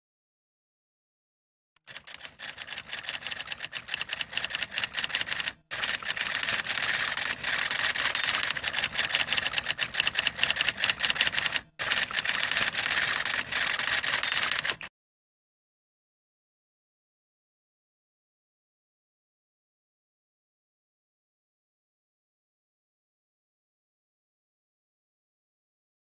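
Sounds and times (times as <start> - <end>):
typewriter key clacks: 2.0 - 14.9.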